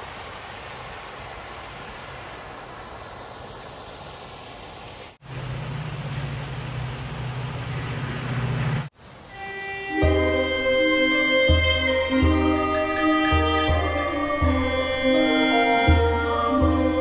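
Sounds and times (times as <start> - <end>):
waterfall splashing into stream: 0.0 - 9.4.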